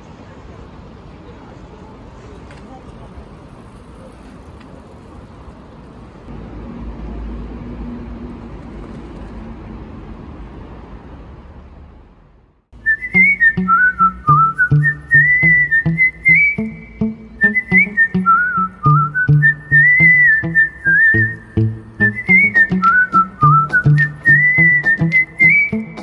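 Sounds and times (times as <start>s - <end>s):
whistled melody: 12.8s - 26.0s
plucked guitar with steady beat: 13.1s - 26.0s.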